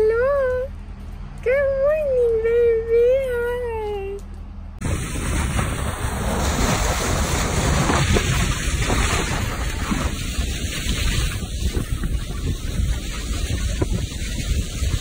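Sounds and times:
water rushing along boat hull: 0:04.8 - 0:15.0
wind buffeting microphone: 0:04.8 - 0:15.0.

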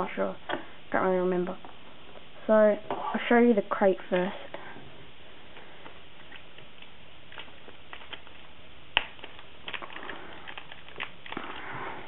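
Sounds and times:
plastic bag crinkling: 0:06.2 - 0:12.0.

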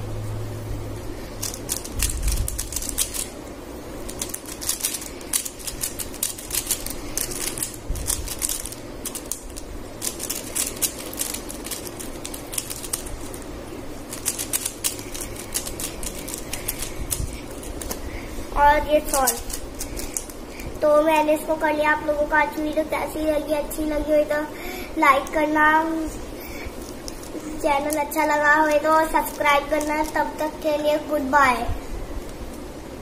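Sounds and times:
puzzle cube clicking as turned: 0:01.4 - 0:03.3, 0:04.1 - 0:13.4, 0:14.1 - 0:18.0, 0:19.1 - 0:20.4.

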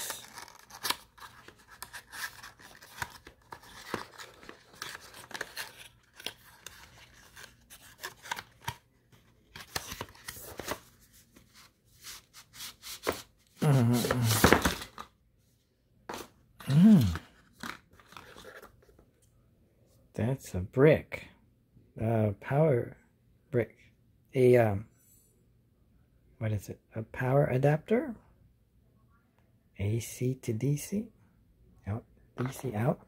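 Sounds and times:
cardboard and paper rustling: 0:00.0 - 0:15.1, 0:17.0 - 0:19.0.

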